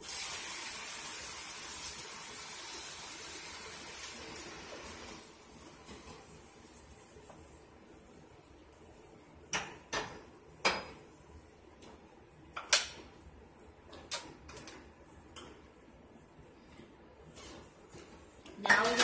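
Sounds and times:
dishes knocking and clinking: 0:09.5 - 0:11.0.

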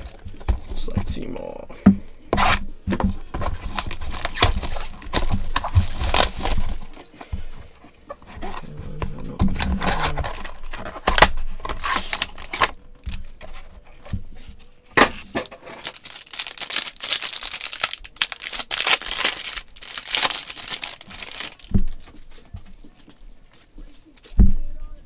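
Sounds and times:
foil wrapper crinkling and tearing: 0:03.5 - 0:07.2, 0:09.6 - 0:13.4, 0:15.7 - 0:22.1.

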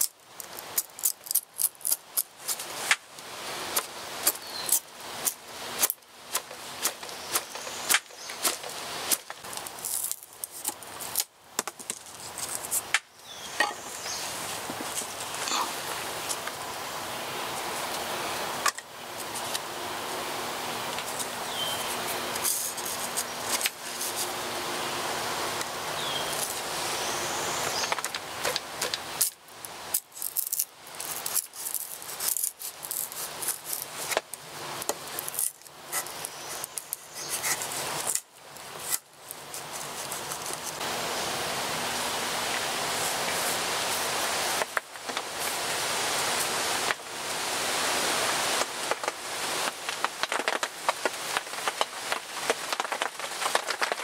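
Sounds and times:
knife scraping wood: 0:00.0 - 0:03.0, 0:03.7 - 0:16.4, 0:21.0 - 0:24.4, 0:27.8 - 0:40.8
raindrops on a tarp: 0:00.0 - 0:13.2, 0:14.3 - 0:54.0.

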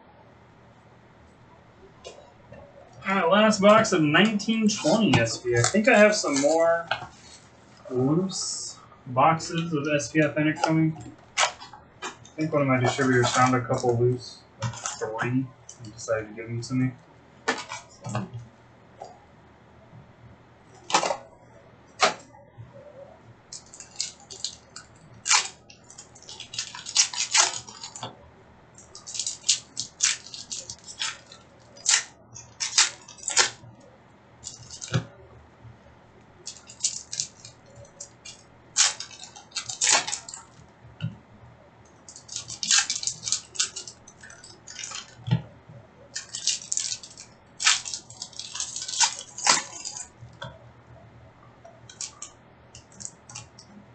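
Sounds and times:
wrappers crinkling and tearing: 0:03.4 - 0:14.0, 0:14.6 - 0:16.8, 0:23.5 - 0:28.1, 0:28.8 - 0:33.7, 0:34.4 - 0:35.2, 0:36.4 - 0:40.7, 0:42.0 - 0:45.4, 0:46.1 - 0:50.5, 0:51.7 - 0:53.7.

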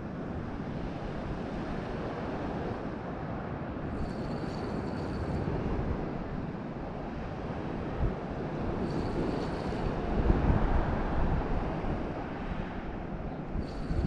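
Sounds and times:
sea surf: 0:00.0 - 0:14.0
wind buffeting microphone: 0:00.0 - 0:14.0
faint high whir: 0:13.6 - 0:14.0.

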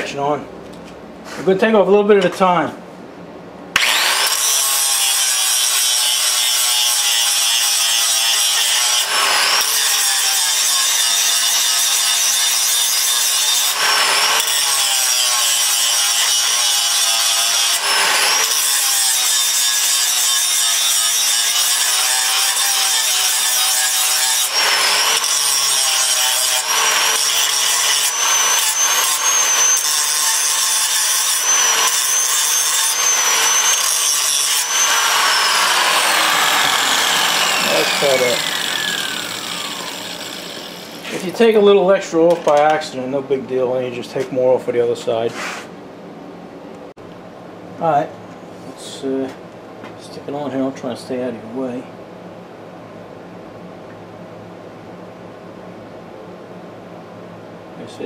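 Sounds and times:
angle grinder grinding steel: 0:03.8 - 0:41.7.

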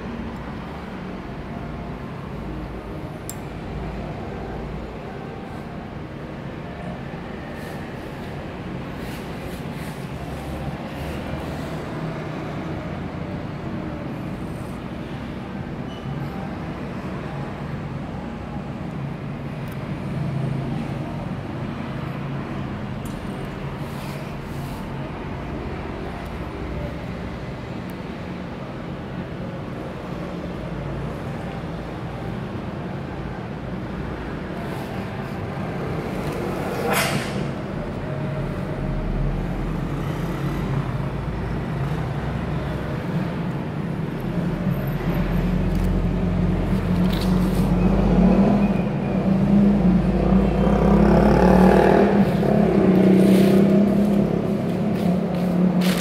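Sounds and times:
click: 0:03.3 - 0:03.5.

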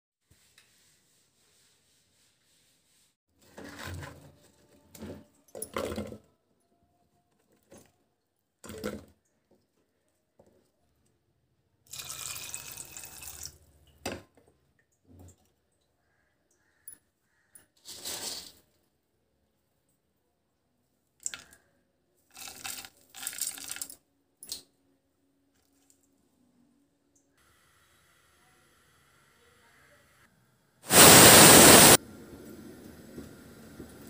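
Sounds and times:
water pouring into pot: 0:11.9 - 0:13.6.

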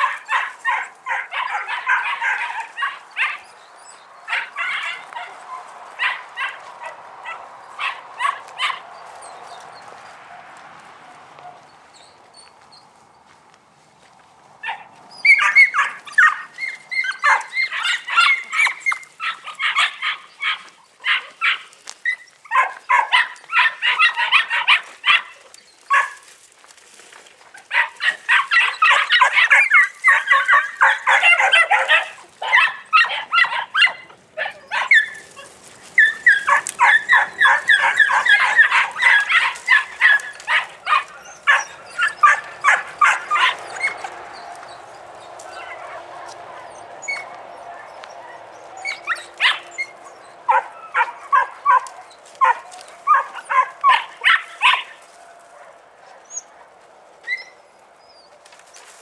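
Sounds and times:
puppies yapping: 0:00.0 - 0:13.4, 0:14.4 - 0:59.0.

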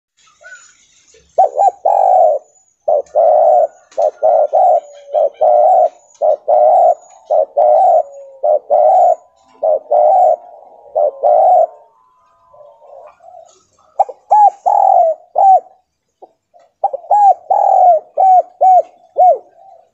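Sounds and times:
faint high chirps: 0:00.2 - 0:19.9
dove cooing: 0:00.4 - 0:19.9.

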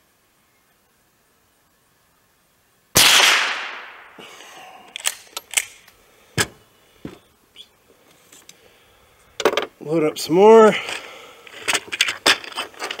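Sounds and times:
rifle shot with echo: 0:03.0 - 0:04.2.

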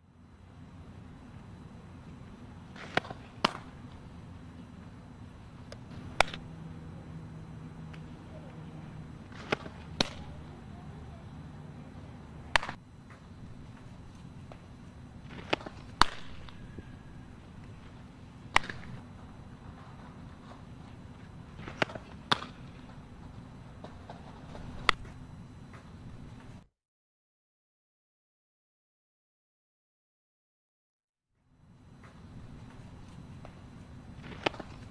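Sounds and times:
steady low rumble: 0:00.0 - 0:25.4
softballs popping into mitt: 0:02.7 - 0:03.8, 0:05.8 - 0:06.4, 0:18.5 - 0:19.0.

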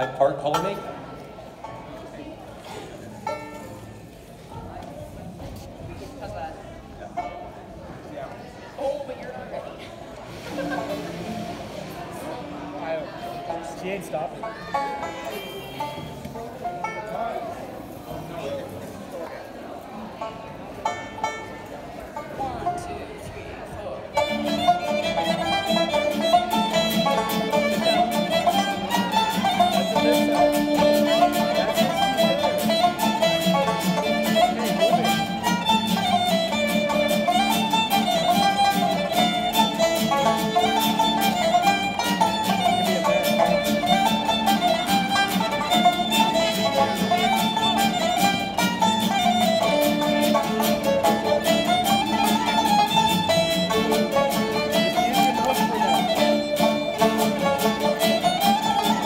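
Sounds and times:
banjo: 0:00.0 - 0:59.0
strummed acoustic guitar: 0:10.2 - 0:17.0, 0:24.2 - 0:59.0
fiddle melody: 0:10.2 - 0:59.0.

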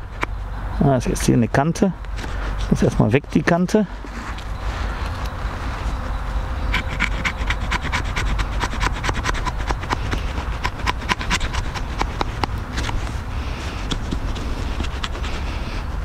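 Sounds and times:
knife shaving wood: 0:06.7 - 0:15.8.

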